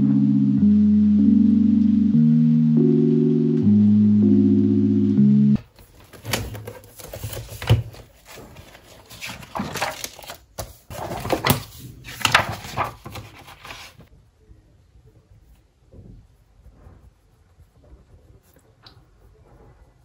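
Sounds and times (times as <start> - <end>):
notebook pages rustling: 5.6 - 14.1.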